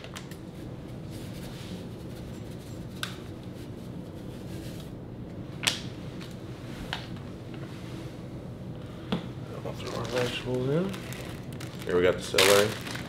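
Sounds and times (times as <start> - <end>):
steady low hum: 0.0 - 13.0
paper packet rustling: 9.8 - 13.0.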